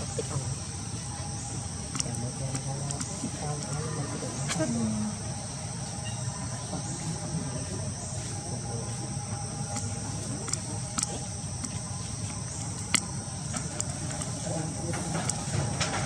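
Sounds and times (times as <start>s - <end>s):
insects chirring: 0.0s - 16.0s
sharp clicks: 1.9s - 3.8s, 9.7s - 16.0s.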